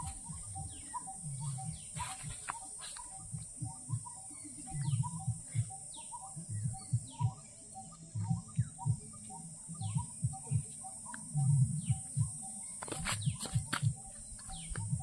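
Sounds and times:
birds chirping: 0:00.0 - 0:15.0
low muffled bumps: 0:11.4 - 0:15.0.

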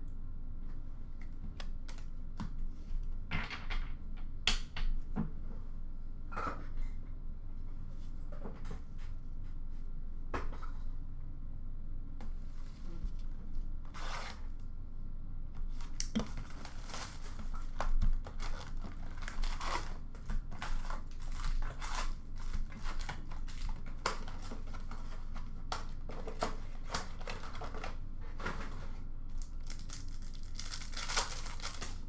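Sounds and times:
foil packs rustling: 0:15.7 - 0:32.0
wrapping crinkling and ripping: 0:15.7 - 0:32.0.

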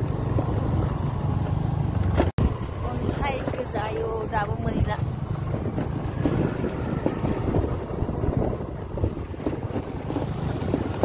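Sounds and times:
motorbike engine rumble: 0:00.0 - 0:11.0
wind buffeting microphone: 0:00.0 - 0:11.0.

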